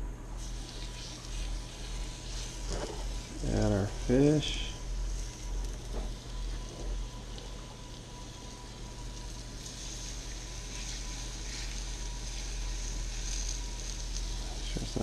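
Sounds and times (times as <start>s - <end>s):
fish sizzling in a skillet: 0.4s - 15.0s.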